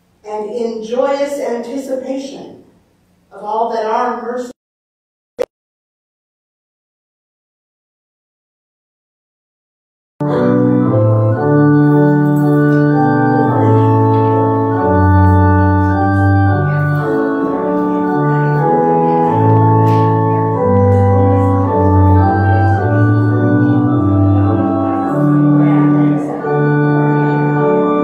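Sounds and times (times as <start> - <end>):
organ playing slow held chords: 10.2 - 28.0.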